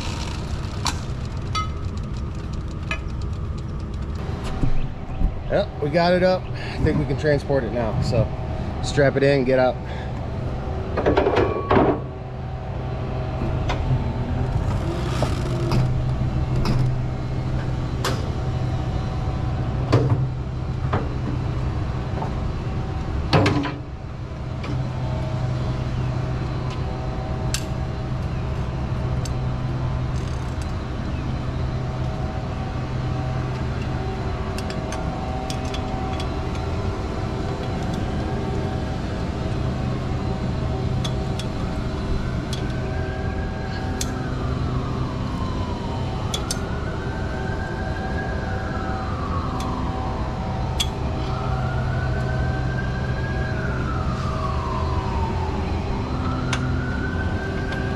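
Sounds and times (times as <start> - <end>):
tow truck engine humming: 0.0 - 57.9
metal clanks and knocks: 11.0 - 12.1.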